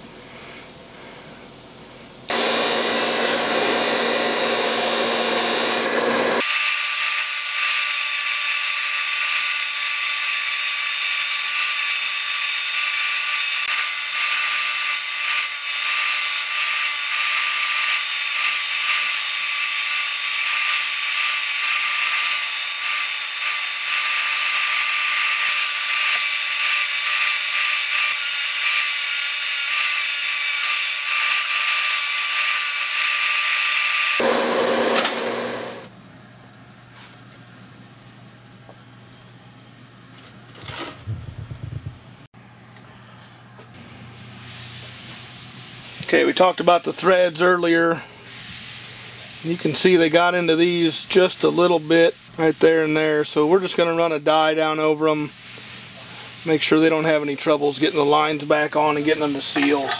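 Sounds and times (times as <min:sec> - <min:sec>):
bench grinder motor whine: 0:02.3 - 0:09.8, 0:20.8 - 0:35.9.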